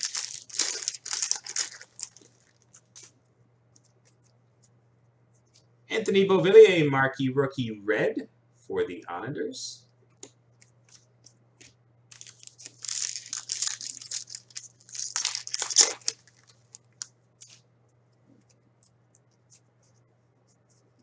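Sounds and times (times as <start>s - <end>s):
wrapper tearing and crinkling: 0.0s - 3.1s, 12.1s - 17.1s.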